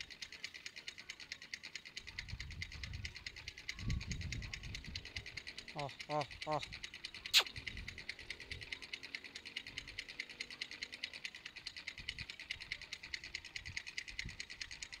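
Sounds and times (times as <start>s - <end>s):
rapid high-pitched ticking: 0.0s - 15.0s.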